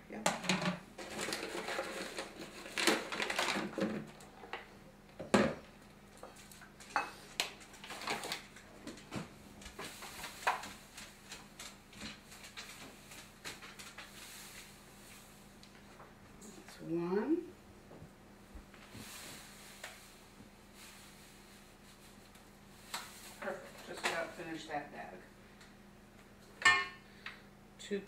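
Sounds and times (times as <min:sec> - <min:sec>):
paper bag rustling: 0:01.0 - 0:04.2, 0:07.6 - 0:08.6, 0:09.9 - 0:15.4, 0:18.9 - 0:24.4
kitchenware clinking and knocking: 0:26.6 - 0:27.0.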